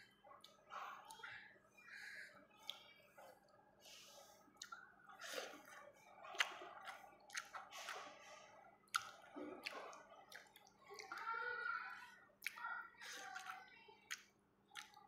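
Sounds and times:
chewing: 0.0s - 15.0s
lip smacks: 2.6s - 3.0s, 4.5s - 11.3s, 12.4s - 15.0s
sharp wet mouth clicks: 4.6s - 4.9s, 6.3s - 8.1s, 8.9s - 11.3s, 12.4s - 12.6s, 13.2s - 15.0s.

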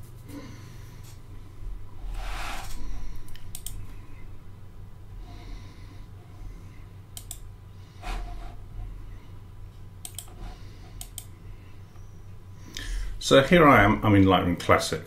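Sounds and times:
low steady hum: 0.0s - 15.0s
computer clicks: 3.3s - 3.8s, 7.2s - 7.4s, 10.0s - 10.4s, 11.0s - 11.3s
person breathing out: 12.6s - 13.2s.

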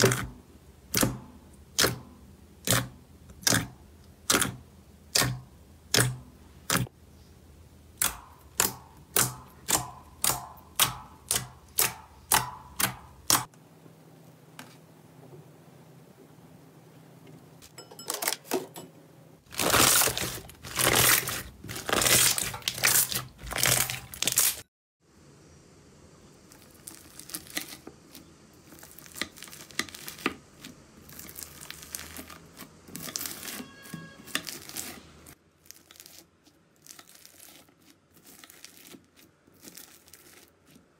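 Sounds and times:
crinkly slime crackling: 19.4s - 24.7s, 26.5s - 33.6s, 34.3s - 40.9s
slime popping: 19.5s - 24.6s.

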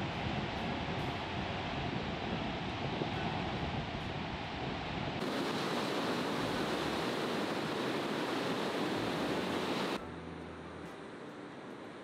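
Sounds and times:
ocean surf breaking on beach: 4.6s - 10.0s.

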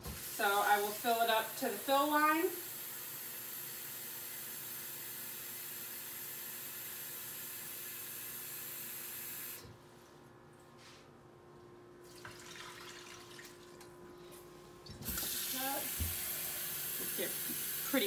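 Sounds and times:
water being poured into a pot: 12.1s - 13.8s.

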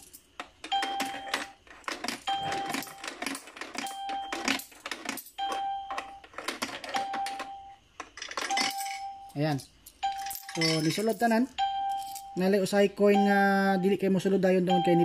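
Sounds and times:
coins clinking into machine: 0.0s - 12.4s
short machine beeps: 14.7s - 15.0s.

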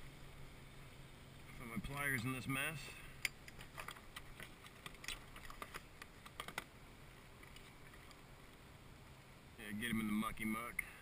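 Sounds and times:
faint hiss: 0.0s - 11.0s
fishing gear clicking and tapping: 3.2s - 6.7s.

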